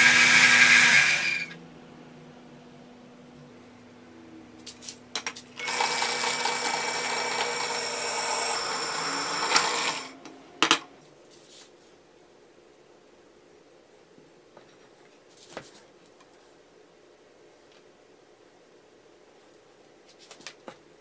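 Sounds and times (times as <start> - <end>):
drill press drilling metal: 0.0 - 1.5, 5.6 - 10.2.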